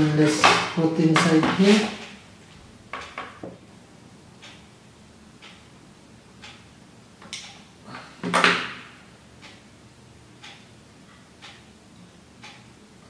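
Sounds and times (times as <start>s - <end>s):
faint steady ticking: 2.2s - 8.0s, 8.6s - 13.0s.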